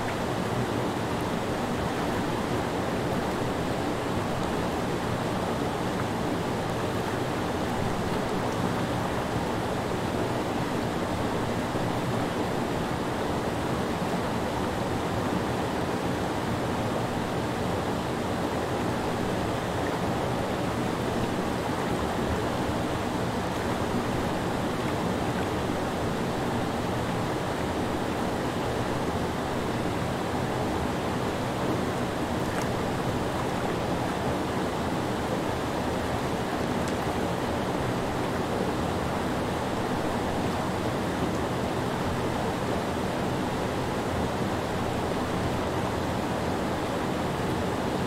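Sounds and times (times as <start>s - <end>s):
water rushing over rocks: 0.0s - 48.0s.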